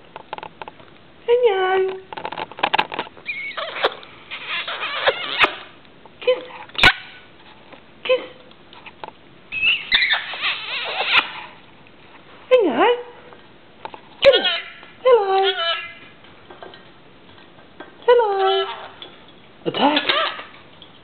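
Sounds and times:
lorikeet chattering chirps: 9.5s - 11.2s.

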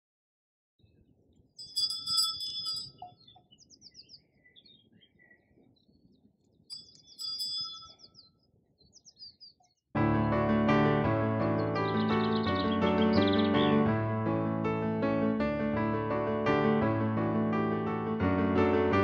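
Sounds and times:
bell-like ringing tone: 1.6s - 3.2s, 6.7s - 8.2s
birds singing and chirping: 1.6s - 9.8s, 11.6s - 13.8s.

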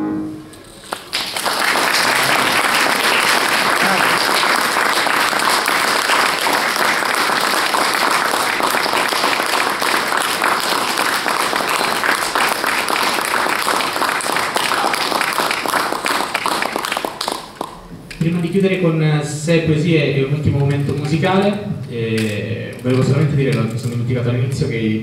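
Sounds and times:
audience applauding: 0.8s - 17.8s.

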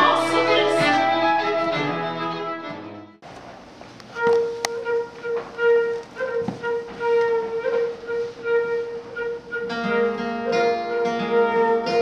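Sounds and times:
acoustic instrumental melody: 0.0s - 3.4s, 4.1s - 12.0s
acoustic guitar picking: 4.2s - 12.0s.

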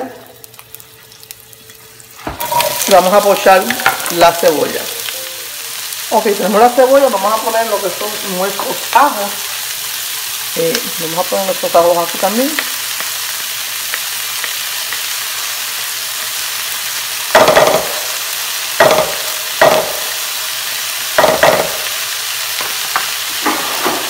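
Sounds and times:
onion sizzling in oil: 0.0s - 24.0s
wooden pestle knocking: 18.8s - 20.0s.

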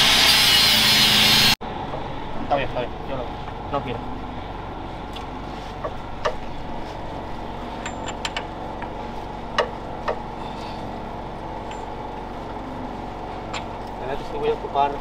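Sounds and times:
steady machine drone: 0.0s - 15.0s
metal tools clinking: 7.8s - 8.4s.

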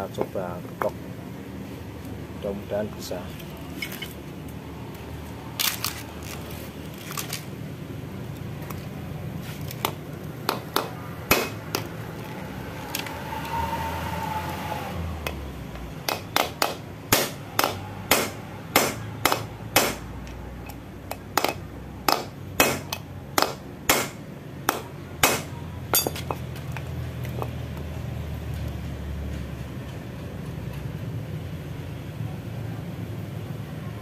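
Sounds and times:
hammer striking steel rod: 10.5s - 11.9s, 16.0s - 20.1s, 21.1s - 26.4s.

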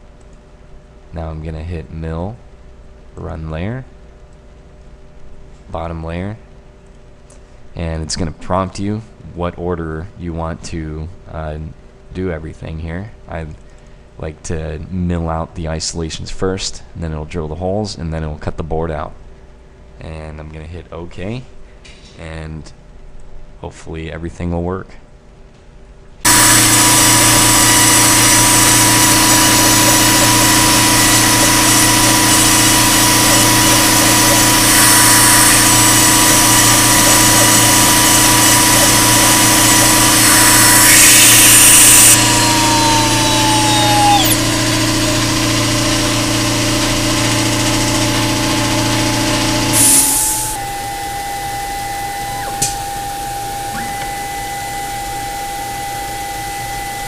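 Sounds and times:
quiet steady machine hum: 0.0s - 57.0s
milling machine whirring: 26.3s - 57.0s
spindle whine: 26.3s - 57.0s.

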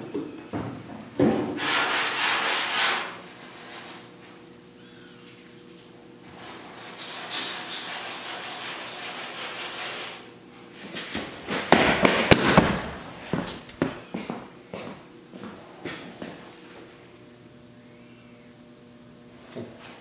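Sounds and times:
sandpaper rasping on filler: 1.6s - 4.1s, 6.3s - 10.3s
sharp knocks and clatter: 11.2s - 14.0s.

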